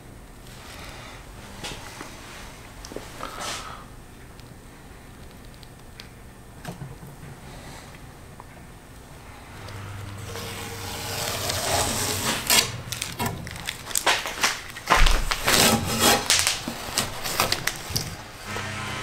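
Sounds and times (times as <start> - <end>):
tape peeling and crumpling: 10.2 - 18.4.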